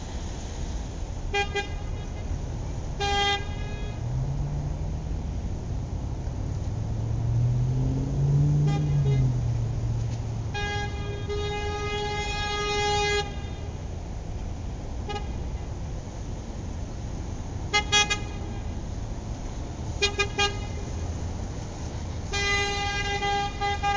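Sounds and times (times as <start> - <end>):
steady low rumble: 0.0 - 12.6
horn toots: 1.3 - 4.4, 7.3 - 13.8, 17.7 - 18.8, 22.3 - 23.9.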